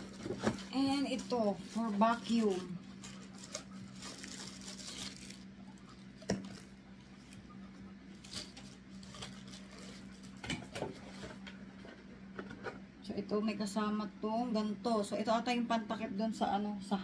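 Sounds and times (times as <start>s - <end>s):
plastic packaging crinkling: 0.0s - 7.5s, 8.1s - 11.4s
steady low hum: 0.0s - 17.0s.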